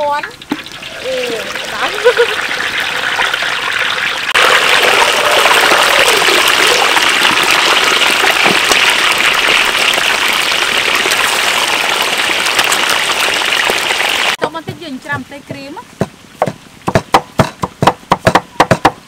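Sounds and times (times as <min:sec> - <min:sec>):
oil sizzling and crackling: 0:00.0 - 0:14.6.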